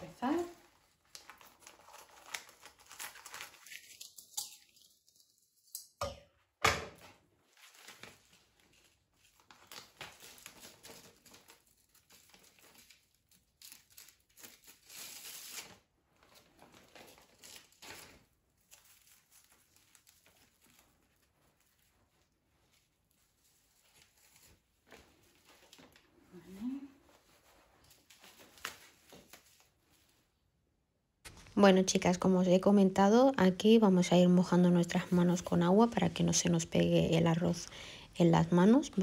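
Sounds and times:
dry seaweed sheets rustling: 0:00.0 - 0:04.2, 0:07.4 - 0:30.3
plastic packet crinkling: 0:00.2 - 0:05.6
scissors cutting plastic packet: 0:01.0 - 0:05.7, 0:09.3 - 0:15.8.

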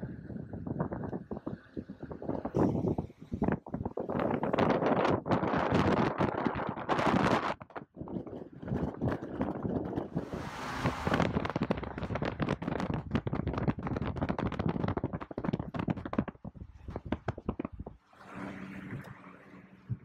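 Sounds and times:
wind buffeting phone microphone: 0:00.0 - 0:20.0
road noise: 0:08.8 - 0:12.6, 0:18.0 - 0:20.0
car cabin hum: 0:09.9 - 0:12.6.

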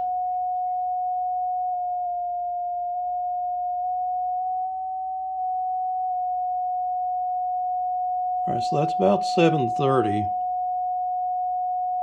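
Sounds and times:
pure sidetone beep: 0:08.4 - 0:10.4.

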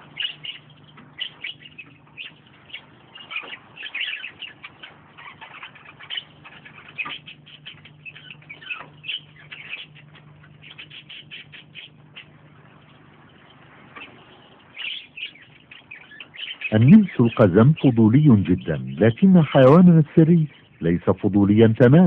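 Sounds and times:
mongooses chirping: 0:00.0 - 0:22.0.

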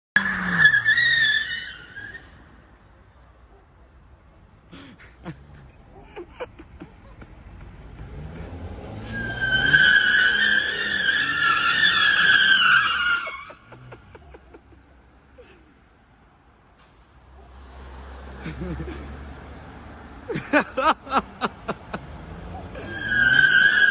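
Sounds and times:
car tyres squealing: 0:00.2 - 0:02.7, 0:07.4 - 0:14.7, 0:20.8 - 0:23.9
car engine revving: 0:07.4 - 0:12.6.

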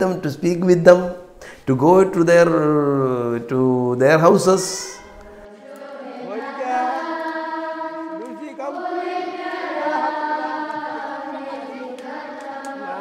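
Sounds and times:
choir singing held notes: 0:04.2 - 0:13.0.

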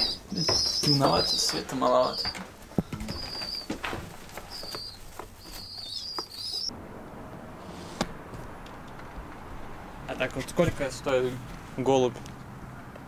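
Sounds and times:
pigeons peeping: 0:00.0 - 0:06.7
outdoor background noise: 0:00.0 - 0:13.0.

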